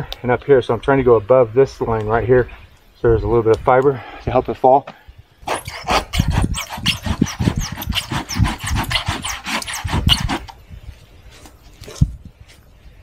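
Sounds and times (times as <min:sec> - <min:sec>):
hand saw cutting tree trunk: 0:05.4 - 0:10.6.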